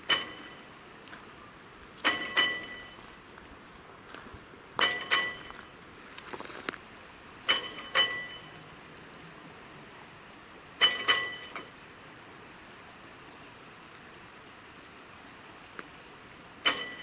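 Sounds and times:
level crossing warning bell: 0.0s - 0.8s, 2.0s - 3.3s, 4.8s - 6.0s, 7.4s - 8.7s, 10.8s - 11.8s, 16.6s - 17.0s.

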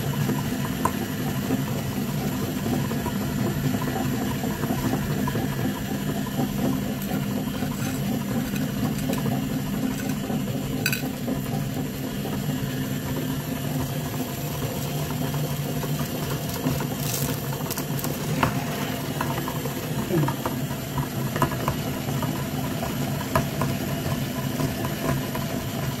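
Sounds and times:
grinder motor hum: 1.6s - 26.0s
clicks and crackles: 16.3s - 18.3s.

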